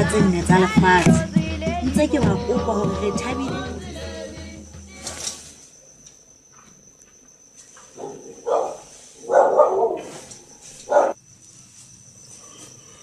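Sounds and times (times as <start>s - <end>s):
dog barking: 8.0s - 10.2s, 10.9s - 11.2s.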